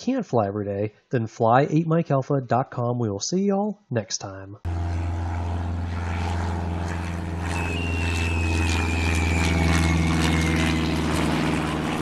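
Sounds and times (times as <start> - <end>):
propeller plane engine drone: 4.7 - 12.0
whistle sliding down in pitch: 7.5 - 10.9.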